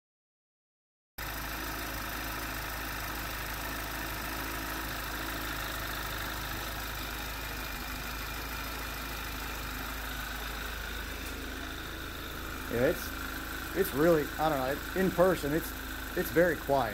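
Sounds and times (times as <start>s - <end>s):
car engine idling: 1.2s - 16.9s
fuel pump noise: 1.2s - 16.9s.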